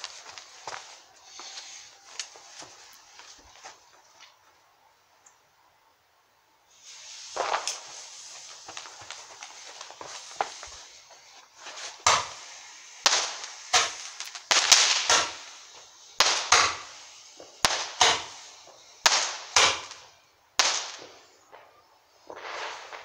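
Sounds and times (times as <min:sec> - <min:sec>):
firework bangs: 0:00.0 - 0:04.3, 0:06.7 - 0:23.0
short hiss: 0:00.0 - 0:04.4, 0:06.7 - 0:23.0.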